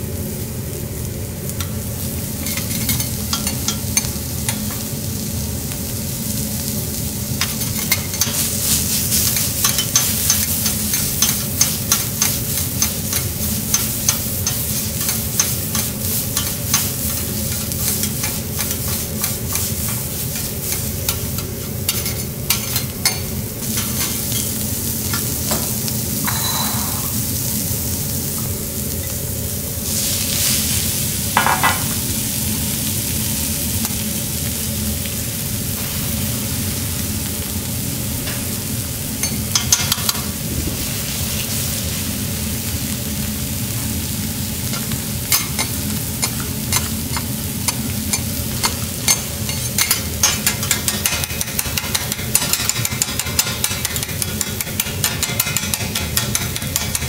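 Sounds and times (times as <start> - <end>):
meat sizzling on a griddle: 0.0 - 57.0
spatulas clicking and scraping: 9.2 - 24.5, 44.7 - 57.0.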